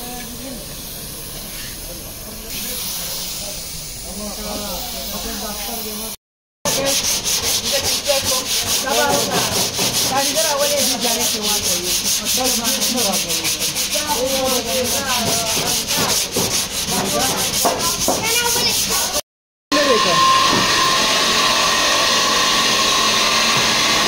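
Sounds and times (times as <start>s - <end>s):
hand sanding with sandpaper: 6.7s - 19.2s.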